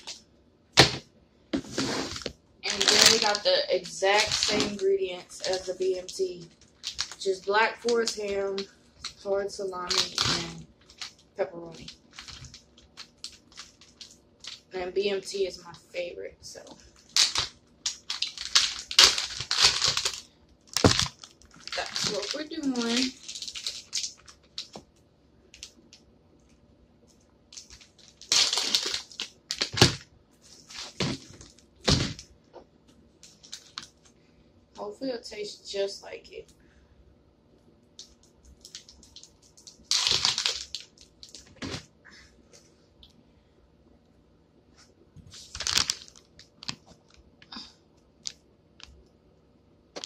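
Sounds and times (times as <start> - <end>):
plastic packaging crinkling: 1.6 - 15.4, 16.6 - 24.8, 25.5 - 26.0, 27.5 - 32.3, 33.2 - 34.2, 38.0 - 41.8, 45.3 - 47.1
plastic packaging cracking: 2.1 - 4.8, 5.4 - 9.2, 9.8 - 14.7, 17.0 - 24.8, 27.5 - 30.0, 30.6 - 32.3, 33.2 - 34.1, 38.0 - 41.8, 45.4 - 46.9.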